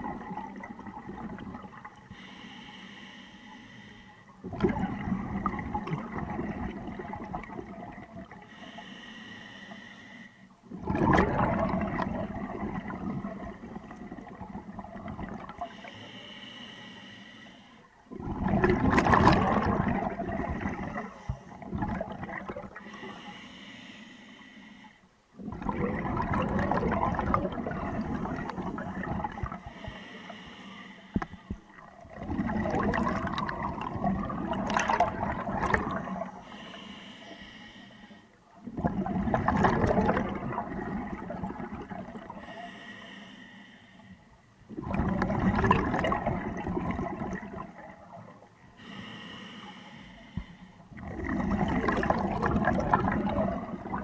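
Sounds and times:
exhaled bubbles rushing underwater: 0:00.0 - 0:02.2, 0:04.4 - 0:08.6, 0:10.7 - 0:15.8, 0:18.1 - 0:23.1, 0:25.4 - 0:30.1, 0:31.1 - 0:36.7, 0:38.5 - 0:42.8, 0:44.6 - 0:49.0, 0:50.3 - 0:54.0
regulator inhalations: 0:02.1 - 0:04.3, 0:08.5 - 0:10.5, 0:15.7 - 0:17.9, 0:22.8 - 0:25.1, 0:29.6 - 0:31.7, 0:36.4 - 0:38.4, 0:42.4 - 0:44.4, 0:48.8 - 0:50.9.

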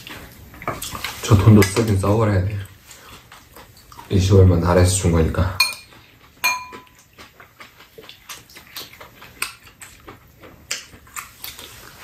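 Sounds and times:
wet chewing sounds: 0:00.0 - 0:12.0
metal spoons clinking against bowls: 0:05.6 - 0:07.0.

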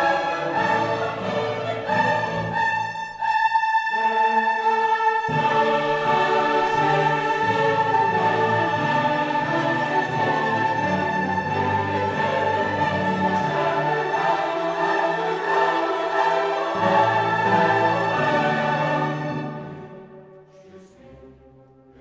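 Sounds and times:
orchestral music with choir: 0:00.0 - 0:22.0.

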